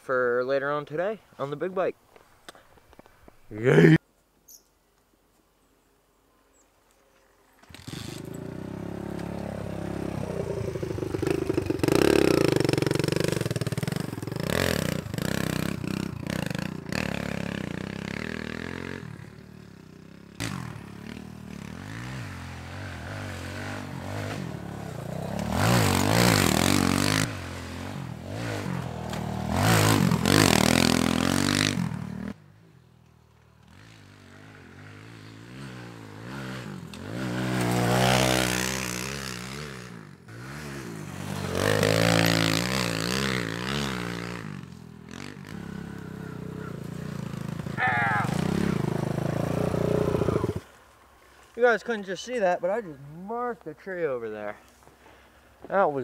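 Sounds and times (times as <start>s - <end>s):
motorbike engine revving: 7.7s - 32.4s, 33.6s - 50.7s.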